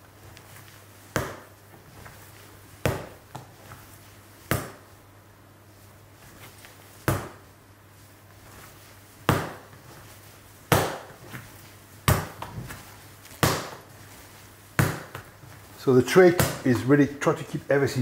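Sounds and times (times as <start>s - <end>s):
dough slapped on wooden worktop: 1.1s - 1.6s, 4.5s - 4.9s, 7.0s - 7.4s, 9.3s - 9.7s, 10.7s - 11.3s, 12.1s - 13.8s, 14.8s - 15.3s.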